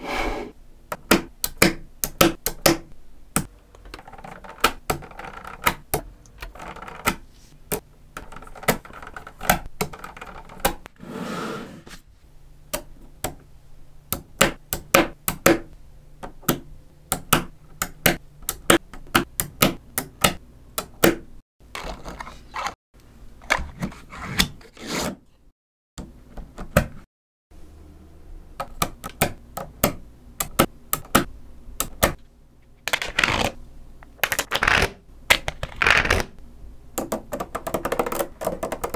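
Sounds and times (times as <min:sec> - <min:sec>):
rattling scrape of sliding sheet: 0:00.0 - 0:00.6, 0:11.0 - 0:12.1.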